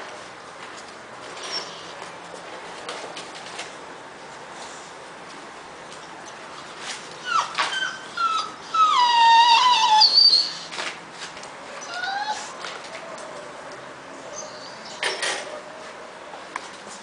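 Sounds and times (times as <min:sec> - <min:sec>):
puppies whining: 0:01.4 - 0:02.0, 0:07.2 - 0:10.9, 0:11.7 - 0:13.5, 0:14.2 - 0:15.8.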